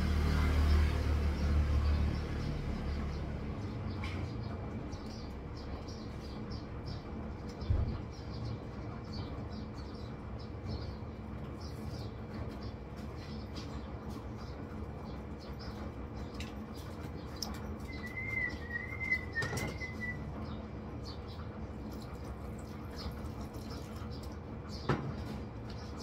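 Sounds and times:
steady background hum: 0.0s - 26.0s
warbling whistle: 18.0s - 20.3s.

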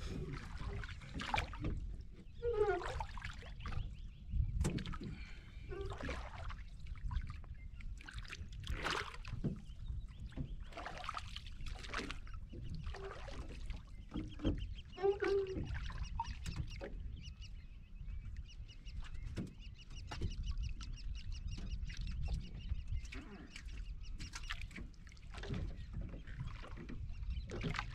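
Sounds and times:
water lapping at wooden boat: 0.0s - 27.9s
wind rumbling on microphone: 0.0s - 27.9s
splashes and knocks of fishing line: 0.3s - 1.9s, 4.6s - 7.3s, 8.0s - 9.7s, 10.3s - 12.3s, 24.2s - 27.9s.

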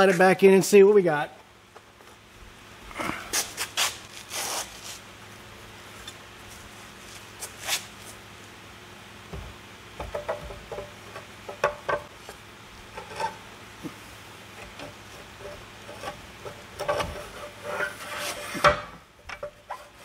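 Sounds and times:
metal scraping and rubbing: 12.8s - 13.6s, 14.7s - 18.7s.

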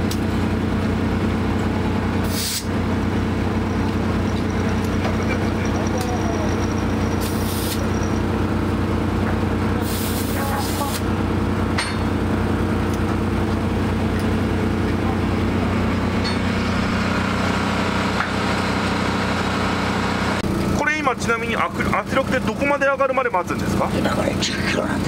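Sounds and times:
engine droning: 0.0s - 25.0s
compressed air hissing: 2.2s - 2.7s, 7.2s - 7.9s, 9.8s - 11.1s.

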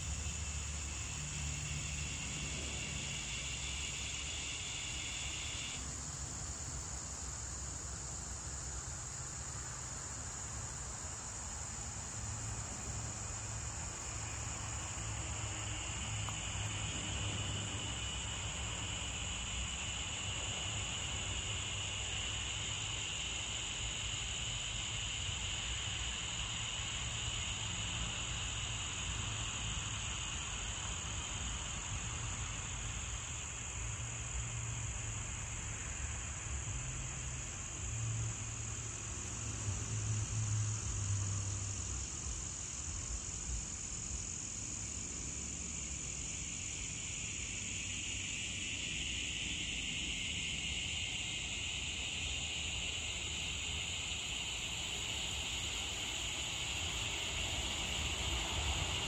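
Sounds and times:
crickets chirring: 0.0s - 59.0s.

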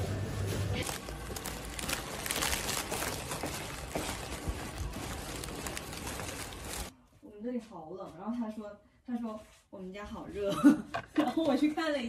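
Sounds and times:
plastic sleeve crinkling: 0.8s - 6.9s.

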